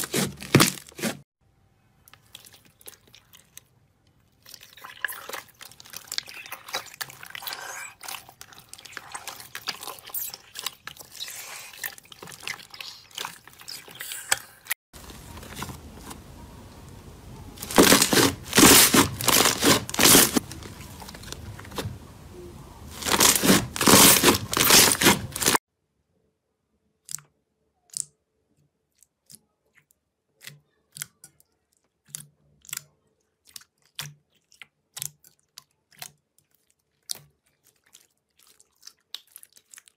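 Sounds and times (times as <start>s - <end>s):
slime crackling: 4.4s - 16.3s, 17.6s - 25.6s.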